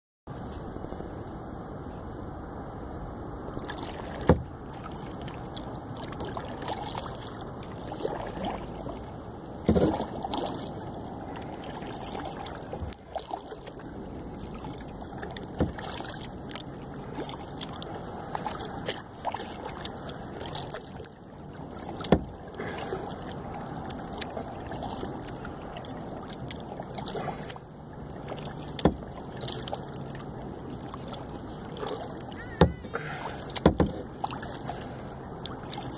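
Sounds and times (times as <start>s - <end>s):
paddle splashing and dripping: 3.2s - 35.9s.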